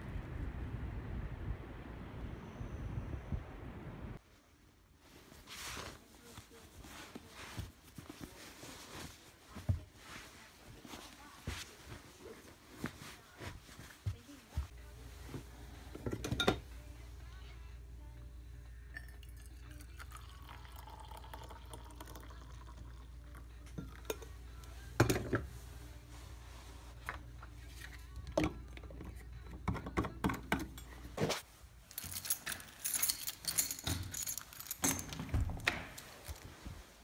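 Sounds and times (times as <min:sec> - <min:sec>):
metal chains jingling and clinking: 0:31.9 - 0:35.6.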